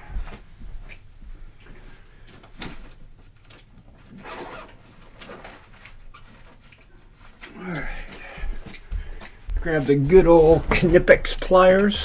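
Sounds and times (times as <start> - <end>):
tools clicking and knocking: 6.5 - 9.5, 10.5 - 12.0.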